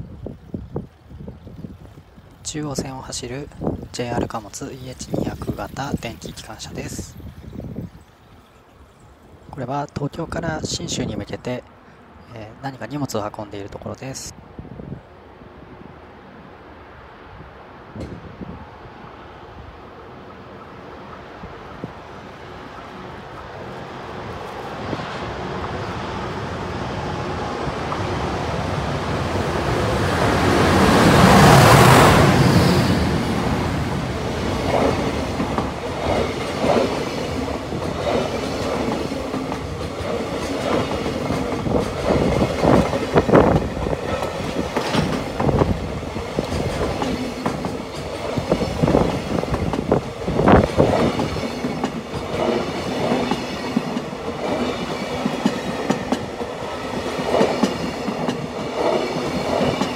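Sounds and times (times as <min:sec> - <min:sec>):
electric locomotive passing: 0:00.0 - 0:10.6, 0:11.3 - 0:59.9
train wheels clacking over rail joints: 0:34.4 - 0:59.9.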